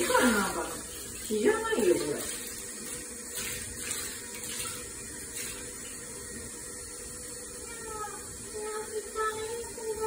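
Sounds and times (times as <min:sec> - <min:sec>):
soft water splashes: 0:00.0 - 0:06.6
water running: 0:00.0 - 0:10.0.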